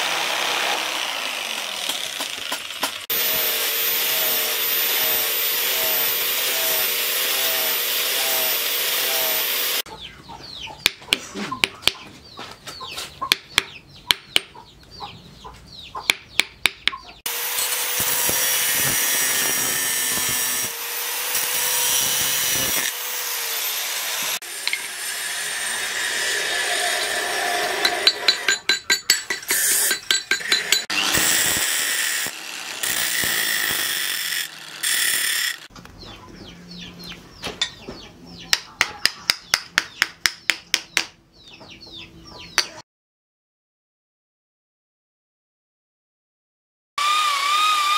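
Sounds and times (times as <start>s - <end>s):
angle grinder running: 0.0s - 9.8s, 17.3s - 35.7s, 47.0s - 47.9s
hammer tapping on metal: 16.0s - 17.1s, 27.8s - 30.9s, 38.5s - 41.2s.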